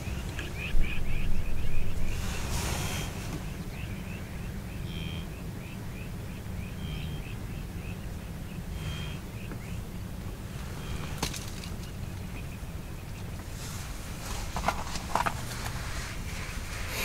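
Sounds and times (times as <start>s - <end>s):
birds chirping: 0.0s - 17.0s
steady low rumble: 0.0s - 17.0s
two-toned bird call: 2.8s - 8.0s.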